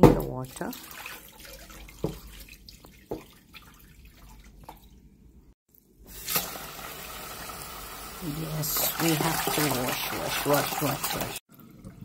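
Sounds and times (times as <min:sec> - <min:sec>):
water dripping: 0:00.1 - 0:05.1
water draining into steel sink: 0:06.1 - 0:12.0.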